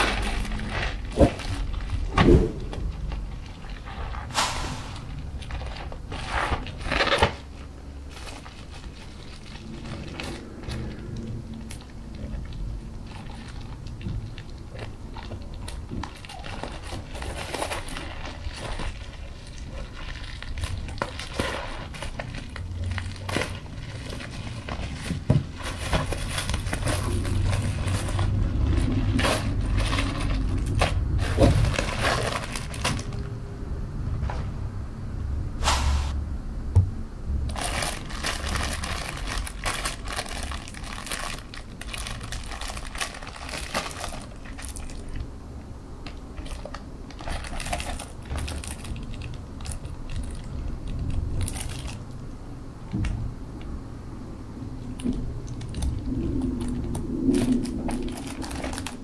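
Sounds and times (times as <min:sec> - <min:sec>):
plastic box sliding: 0:00.0 - 0:07.5
plastic crinkling: 0:00.0 - 0:33.3, 0:37.4 - 0:52.4, 0:54.8 - 0:59.0.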